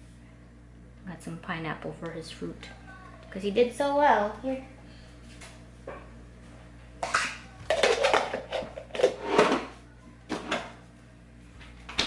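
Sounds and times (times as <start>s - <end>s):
dishes knocking and rattling: 7.1s - 9.7s.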